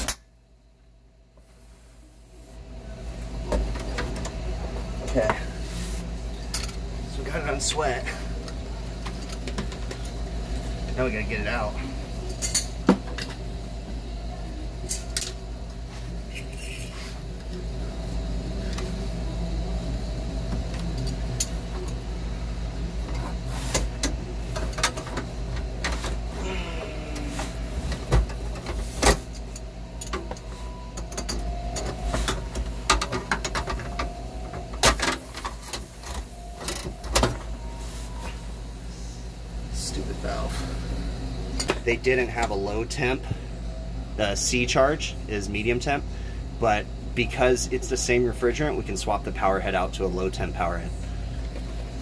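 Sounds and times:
brazing torch running: 14.9s - 36.9s.

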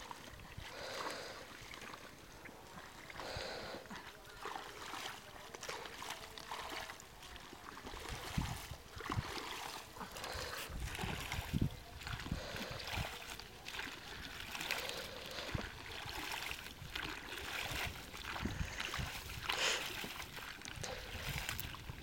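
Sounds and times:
shallow water sloshing and trickling: 0.0s - 22.0s
small water splashes: 0.0s - 22.0s.

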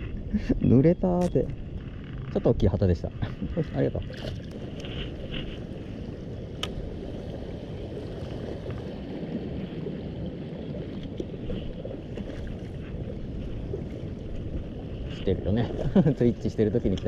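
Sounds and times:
seawater rushing around rocks: 3.5s - 17.0s.

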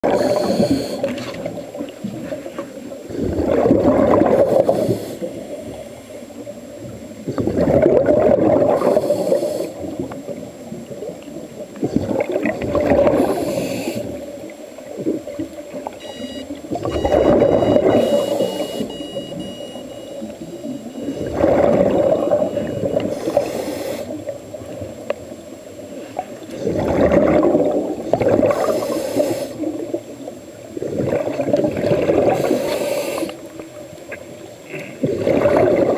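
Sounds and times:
bubbling exhalations underwater: 0.0s - 2.3s, 3.1s - 5.1s, 7.2s - 20.1s, 20.9s - 24.9s, 26.4s - 30.0s, 30.7s - 33.3s, 34.7s - 35.9s
hissing regulator inhalations: 0.1s - 1.2s, 4.4s - 5.9s, 8.8s - 9.9s, 13.1s - 14.2s, 22.6s - 24.3s, 28.6s - 29.7s, 32.3s - 33.5s.

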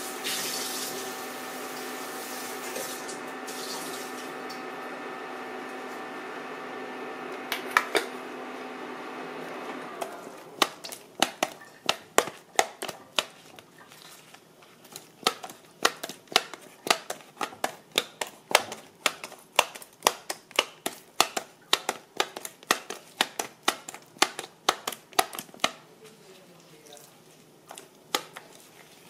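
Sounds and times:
meat tenderizer clacking: 10.0s - 13.6s, 14.9s - 25.8s, 27.8s - 28.5s.

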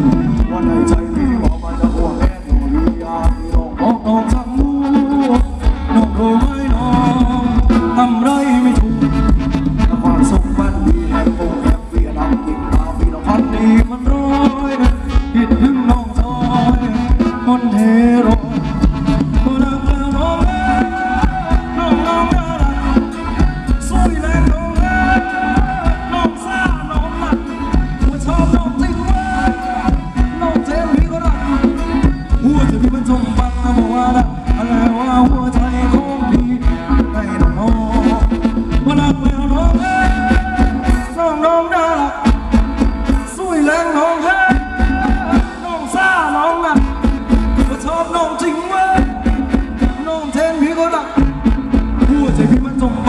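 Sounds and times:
band playing dance music: 0.0s - 53.0s.

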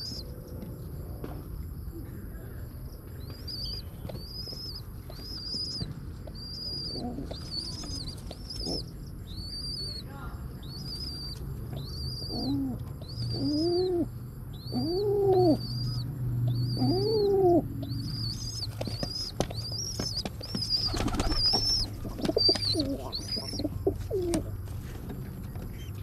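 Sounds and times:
pigeon cooing: 3.4s - 10.0s, 10.7s - 26.0s
wing flutters and rustles: 18.5s - 26.0s.

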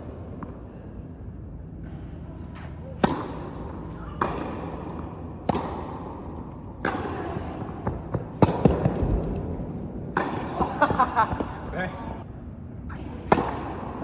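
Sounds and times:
tennis ball bouncing on court: 2.6s - 11.7s, 12.9s - 14.0s
tennis ball struck by racquet: 3.0s - 9.4s, 10.0s - 11.5s, 12.9s - 14.0s.

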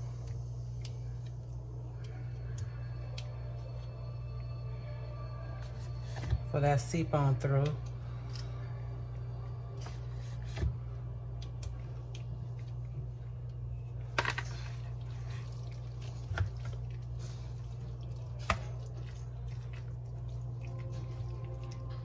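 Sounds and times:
steady low hum: 0.0s - 22.0s
spoon squishing wet food: 14.4s - 22.0s.

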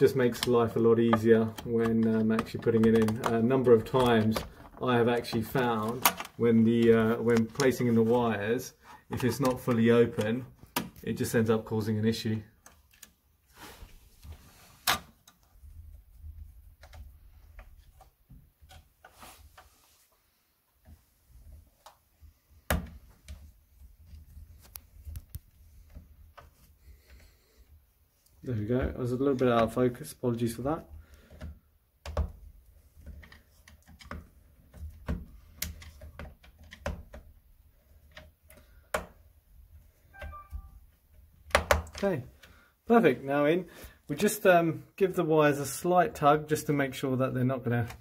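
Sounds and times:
small plastic clicks and knocks: 0.3s - 7.8s, 9.1s - 11.1s, 30.9s - 39.2s.

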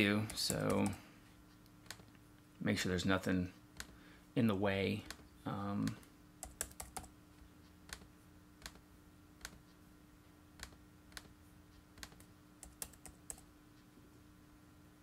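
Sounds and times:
faint steady hum: 0.0s - 15.0s
keyboard and mouse clicks: 0.3s - 1.0s, 5.8s - 7.1s, 7.9s - 8.8s, 9.4s - 9.6s, 10.6s - 11.4s, 12.0s - 13.5s.

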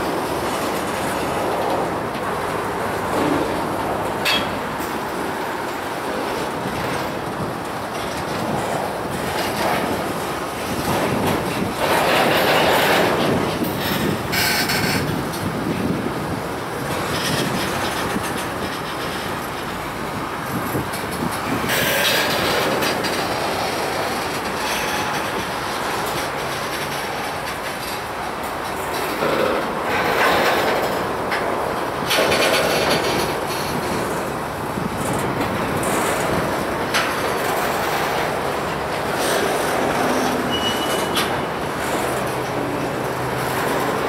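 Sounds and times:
freight train rumbling on rails: 0.0s - 44.0s
high wheel squeal: 24.5s - 25.4s, 39.5s - 41.5s.

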